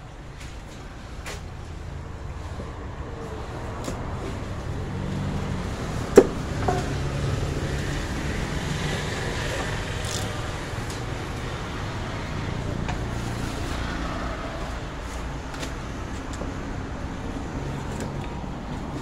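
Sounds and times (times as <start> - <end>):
traffic rumble: 0.0 - 19.0.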